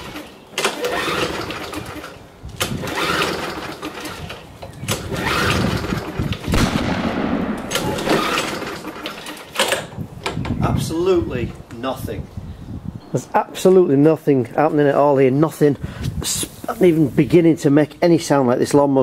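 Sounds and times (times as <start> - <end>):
lawnmower recoil pull-start: 0.0 - 6.5, 7.7 - 9.9
engine turning over: 0.0 - 9.8.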